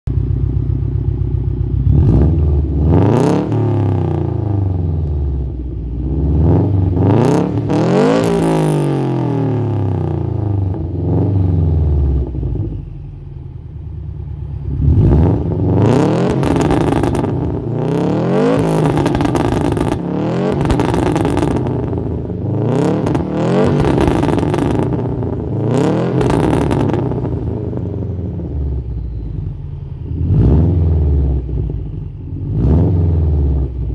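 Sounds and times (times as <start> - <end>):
car engine revving: 0.2 - 33.9
exhaust crackles and pops: 16.3 - 17.8, 18.5 - 27.8.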